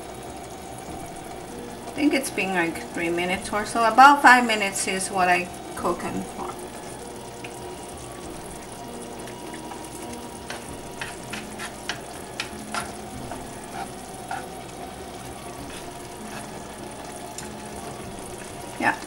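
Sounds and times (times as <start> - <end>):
noodles sizzling in a pan: 0.0 - 19.0
utensils scraping and clicking on pan: 10.4 - 14.6, 15.2 - 17.6.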